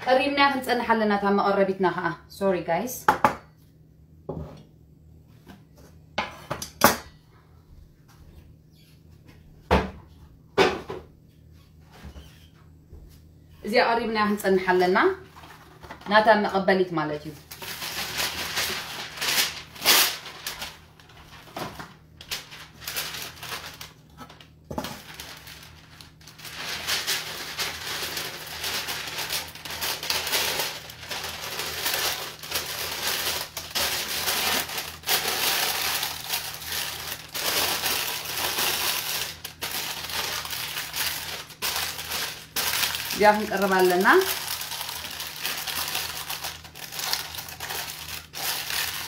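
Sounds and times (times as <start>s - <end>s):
baking paper crinkling: 14.2s - 49.0s.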